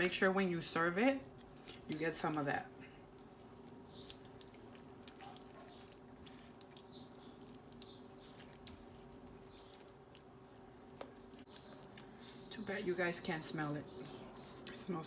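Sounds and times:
steady low hum: 0.0 - 15.0
brush dabbing wet sauce: 3.3 - 13.4.

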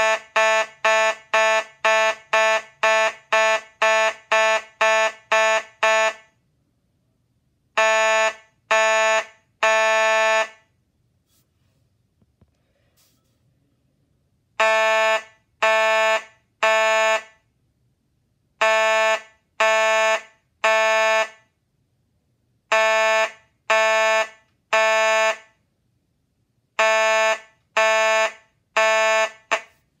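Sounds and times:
fire alarm horn blasts: 0.0 - 6.4, 7.7 - 10.8, 14.6 - 17.5, 18.6 - 21.6, 22.7 - 25.6, 26.7 - 29.9.

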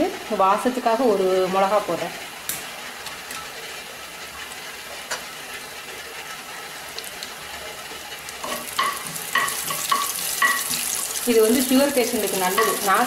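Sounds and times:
hot oil sizzling: 0.0 - 13.0
spatula scraping a pan: 8.4 - 11.2.

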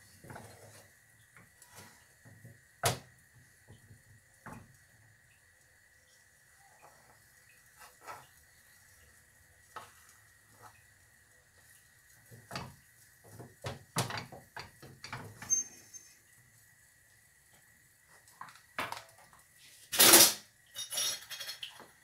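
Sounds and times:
metal turner clinking against pans: 20.0 - 21.8.

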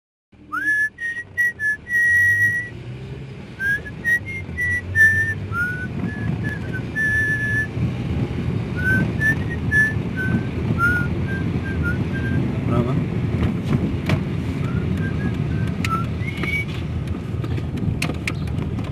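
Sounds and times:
car engine rumble: 0.4 - 18.9
person whistling a tune: 0.5 - 2.8, 3.6 - 7.7, 8.8 - 12.4, 14.6 - 16.8.

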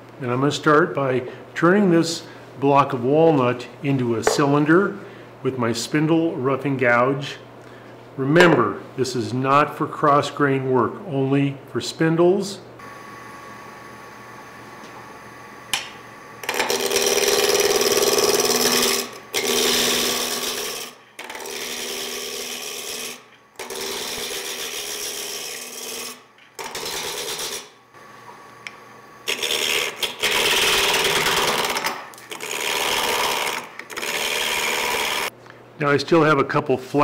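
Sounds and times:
gouge cutting spinning wood: 16.4 - 27.6, 29.3 - 35.3
wood lathe humming: 16.4 - 28.2, 29.2 - 35.3.

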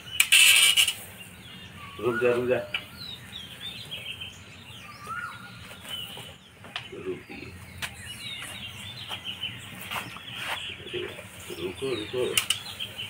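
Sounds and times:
small birds chirping: 0.0 - 13.0
sharp clicks: 12.3 - 12.7.

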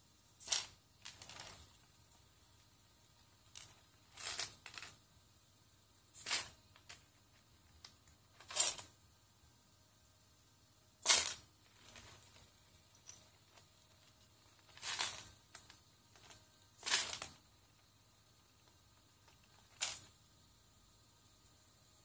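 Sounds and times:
plastic bricks rattling: 0.4 - 1.8, 11.1 - 17.4.

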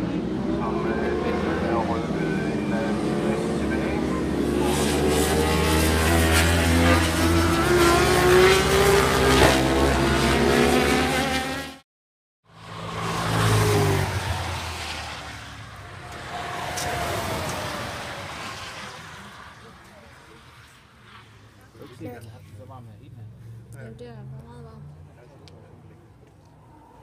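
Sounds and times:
racing motorcycles passing: 0.0 - 11.8, 12.5 - 27.0
vehicle engine passing: 0.0 - 11.8, 12.5 - 27.0.

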